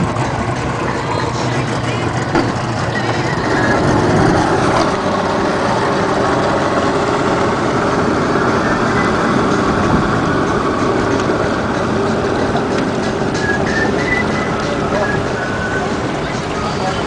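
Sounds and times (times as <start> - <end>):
outboard motors droning: 0.0 - 17.0
rushing water: 0.0 - 17.0.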